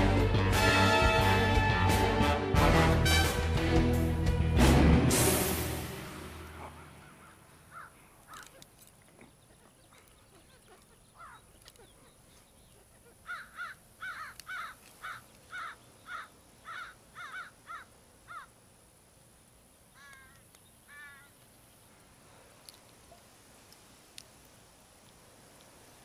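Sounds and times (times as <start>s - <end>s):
crow cawing: 6.7s - 8.5s, 11.2s - 11.4s, 13.2s - 18.5s, 20.0s - 21.3s.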